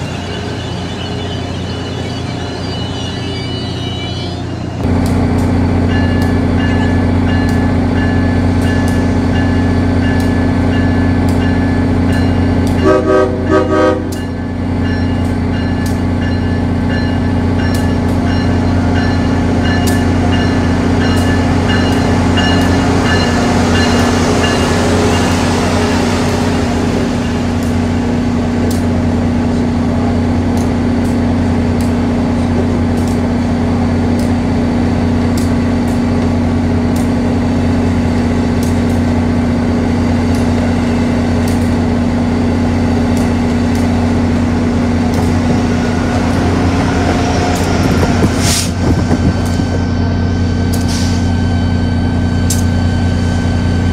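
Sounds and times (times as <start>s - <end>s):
train electric hum and whine: 0.0s - 53.9s
train horn toots: 12.7s - 14.3s
hiss of passing rail cars: 22.1s - 34.4s, 43.0s - 51.5s.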